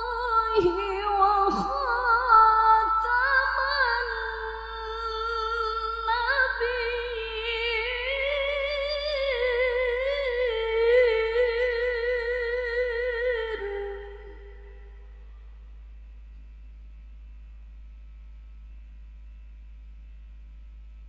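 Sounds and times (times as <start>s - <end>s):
woman reciting melodically: 0.0s - 14.6s.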